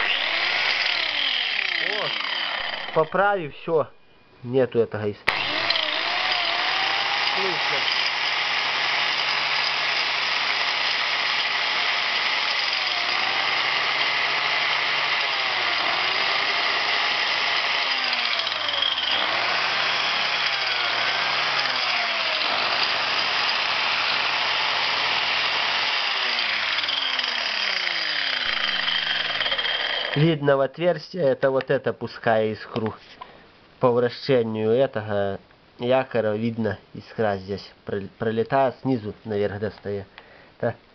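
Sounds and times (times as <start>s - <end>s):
angle grinder motor running: 0.0s - 3.2s, 5.3s - 30.2s.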